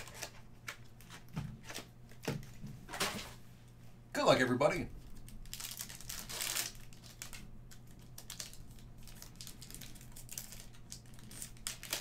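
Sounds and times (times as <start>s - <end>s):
wrapper torn and crinkled: 0.0s - 0.4s, 5.0s - 12.0s.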